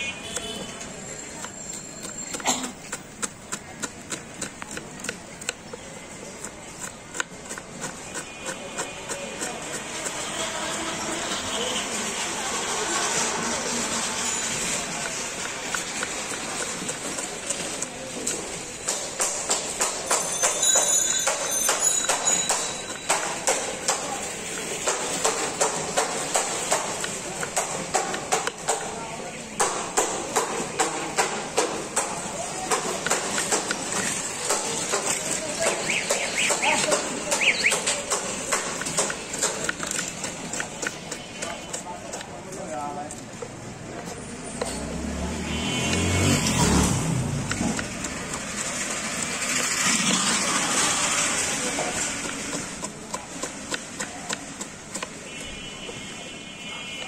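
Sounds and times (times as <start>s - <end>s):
knife chopping on wooden board: 1.4s - 10.6s, 14.9s - 20.6s, 21.2s - 29.0s, 29.6s - 42.4s, 51.8s - 55.2s.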